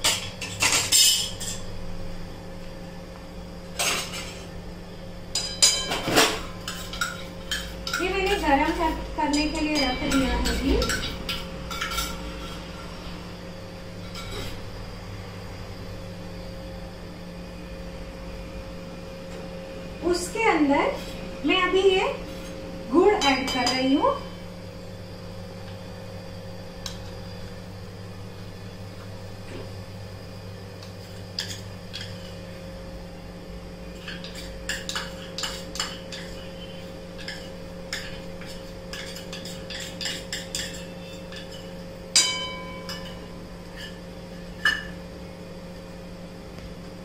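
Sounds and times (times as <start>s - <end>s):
steady low hum: 0.0s - 47.0s
steel utensils clinking on pan: 5.4s - 12.6s
loud ringing metal clank: 42.1s - 43.2s.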